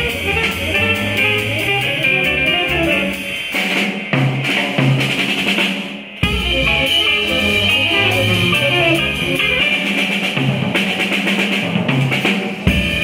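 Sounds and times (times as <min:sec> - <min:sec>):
jazz quartet playing: 0:00.0 - 0:03.7, 0:06.2 - 0:11.2
drum kit: 0:00.0 - 0:13.0.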